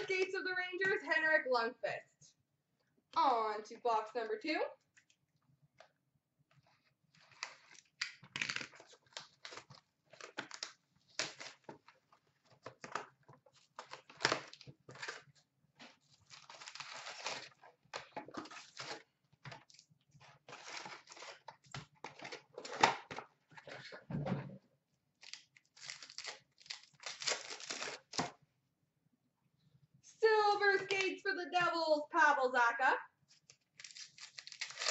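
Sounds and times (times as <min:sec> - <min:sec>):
wrapping crinkling and tearing: 0:06.6 - 0:22.9, 0:25.2 - 0:28.4, 0:33.3 - 0:34.9.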